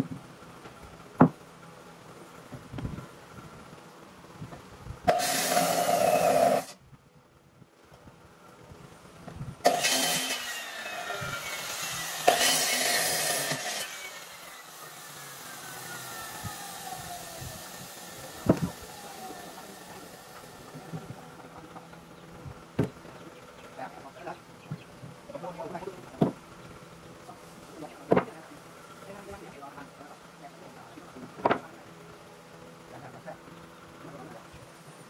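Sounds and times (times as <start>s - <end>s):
circular saw cutting wood: 5.1s - 6.8s, 9.6s - 21.5s
saw blade spinning down: 5.1s - 6.8s, 9.6s - 20.6s.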